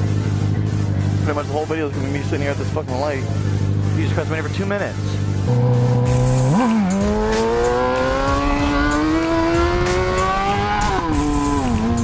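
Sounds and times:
motorcycle engine accelerating: 3.3 - 12.0.

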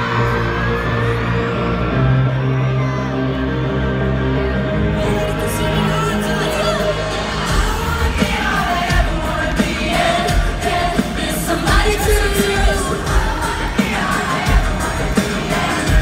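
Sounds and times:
live pop band playing: 0.0 - 16.0
drum beat: 7.5 - 16.0.

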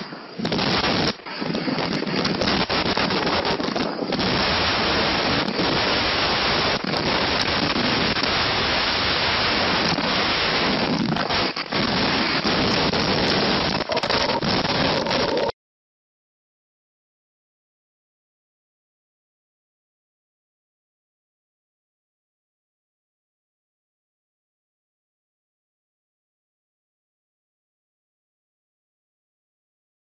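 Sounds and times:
driving rain: 0.0 - 15.5
strong wind on microphone: 0.0 - 15.5.

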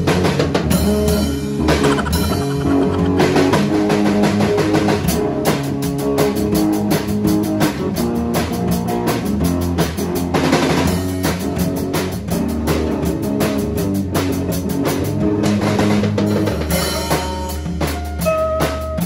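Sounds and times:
electric guitars playing chords: 0.0 - 6.5
drum kit beat: 0.0 - 19.0.

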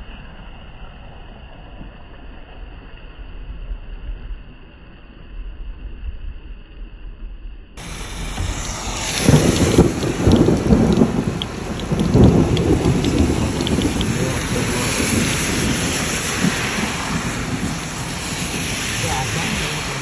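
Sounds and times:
low rumble: 0.0 - 20.0
heavy rain on car and road: 7.8 - 20.0.

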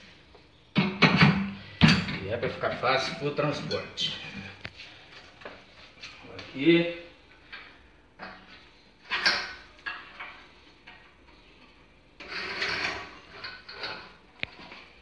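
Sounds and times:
metal clunks and scraping: 12.2 - 14.8.

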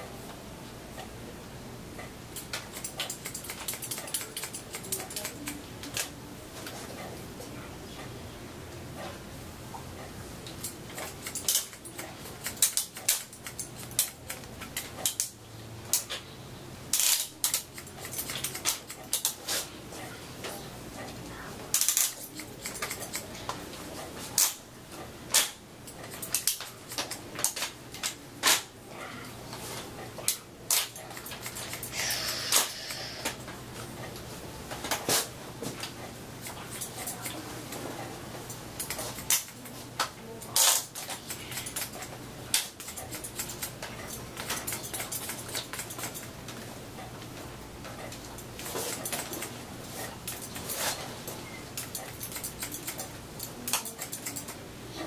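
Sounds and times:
scissors snipping hair: 2.4 - 6.1, 10.5 - 16.2, 16.9 - 19.7, 21.7 - 24.6, 25.3 - 28.7, 30.3 - 33.4, 34.9 - 37.8, 38.5 - 47.1, 48.0 - 54.6.

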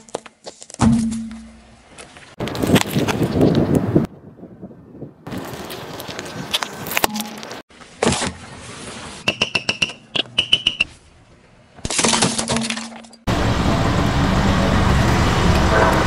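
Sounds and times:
tyre and road noise: 0.0 - 16.0
objects cracking under tyre: 5.3 - 8.4
high squeak: 9.2 - 10.9.

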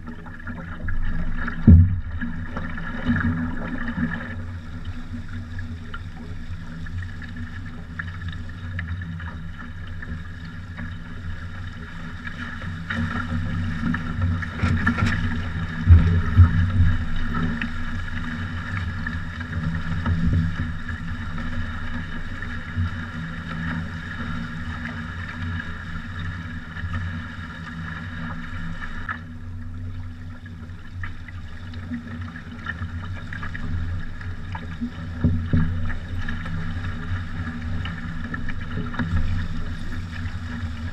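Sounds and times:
water thumping against hull: 0.0 - 6.1, 6.7 - 29.4, 31.8 - 40.9
water rushing along hull: 0.0 - 40.9.

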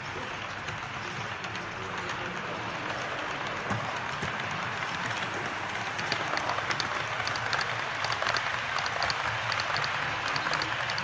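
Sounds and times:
model train wheels on rail: 0.0 - 11.0
quick repeated clicks: 6.0 - 11.0.

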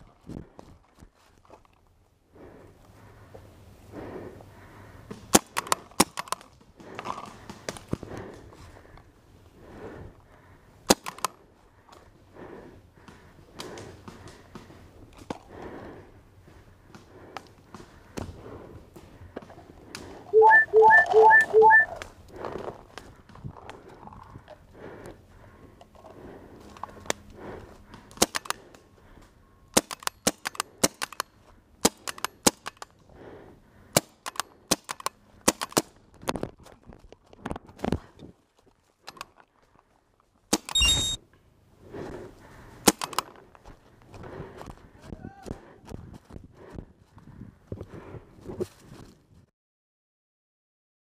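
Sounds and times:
paintball gun cracks: 5.3 - 6.6, 10.9 - 11.4, 28.1 - 28.7, 29.7 - 32.9, 33.9 - 35.9, 42.8 - 43.4.

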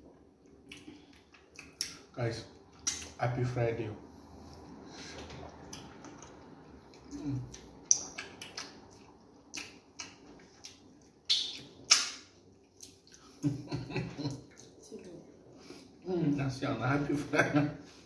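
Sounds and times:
wet eating noises: 0.1 - 3.2, 4.3 - 16.0.

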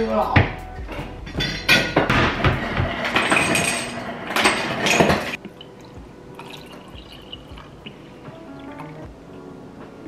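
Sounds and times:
dishes clattering: 0.9 - 5.4
liquid pouring into a cup: 5.4 - 9.1.

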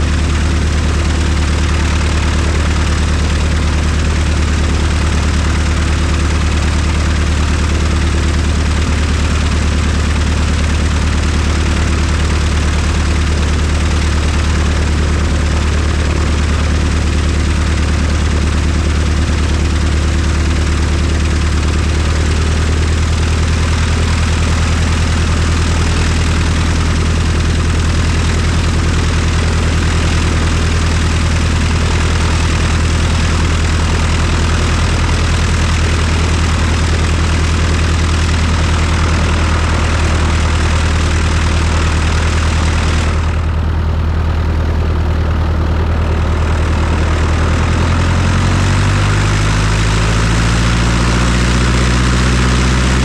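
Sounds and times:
plane engine idling: 0.0 - 53.0.

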